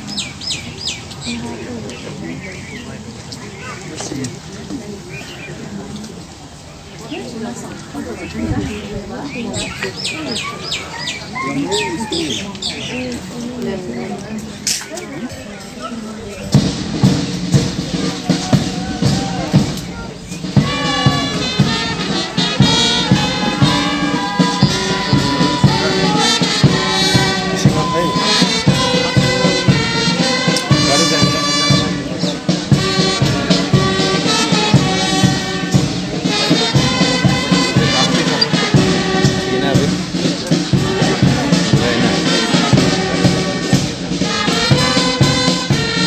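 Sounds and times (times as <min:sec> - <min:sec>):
steady drum beat: 0:16.4 - 0:46.0
brass melody: 0:20.4 - 0:46.0.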